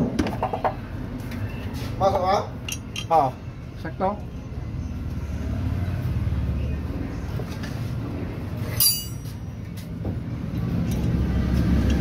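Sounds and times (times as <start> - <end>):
metal striking metal ring: 8.7 - 9.4.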